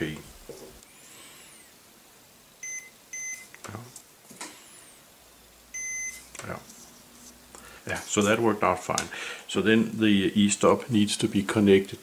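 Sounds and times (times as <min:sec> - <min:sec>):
multimeter beeping: 0:02.6 - 0:03.5, 0:05.7 - 0:06.3.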